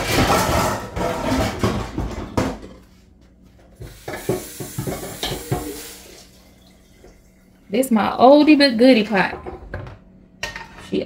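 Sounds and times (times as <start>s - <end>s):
pots and pans clattering: 0.0s - 2.9s, 3.6s - 7.2s, 9.1s - 11.0s.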